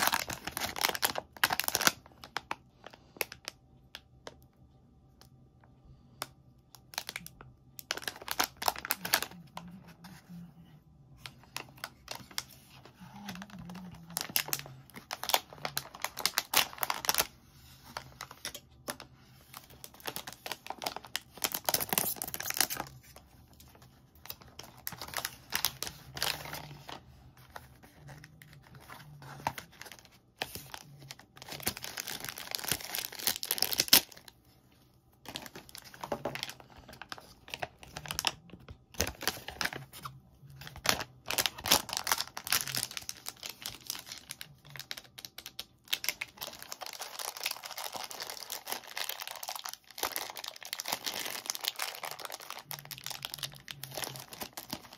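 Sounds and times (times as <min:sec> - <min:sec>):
plastic bag tearing and crinkling: 0:00.0 - 0:02.5, 0:06.9 - 0:09.4, 0:11.5 - 0:17.3, 0:19.4 - 0:23.2, 0:24.2 - 0:27.0, 0:28.4 - 0:34.3, 0:39.0 - 0:54.9
small plastic bag crinkling: 0:00.0 - 0:04.4, 0:06.2 - 0:10.2, 0:11.2 - 0:34.5, 0:35.1 - 0:54.9.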